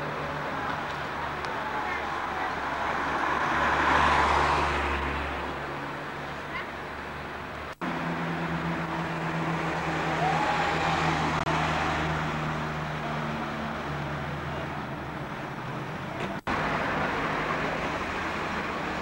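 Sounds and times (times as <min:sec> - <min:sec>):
motor vehicle humming: 0:00.0 - 0:19.0
passing cars road noise: 0:00.0 - 0:19.0.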